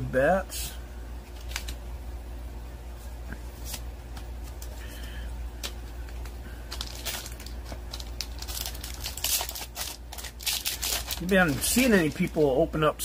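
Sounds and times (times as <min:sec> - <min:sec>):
low steady hum: 0:00.0 - 0:13.0
cards in plastic sleeves clicking: 0:01.3 - 0:01.8, 0:05.6 - 0:12.4.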